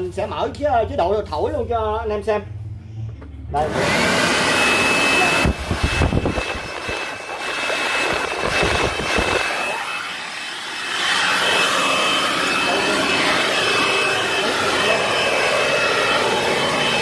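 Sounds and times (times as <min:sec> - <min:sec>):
leaf blower running: 0:03.6 - 0:17.0.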